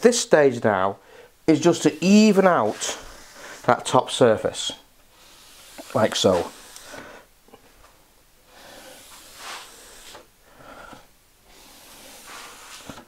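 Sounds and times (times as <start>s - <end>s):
sponge swishing on wood: 1.6s - 3.9s, 5.1s - 7.0s, 8.6s - 10.3s, 11.5s - 13.0s.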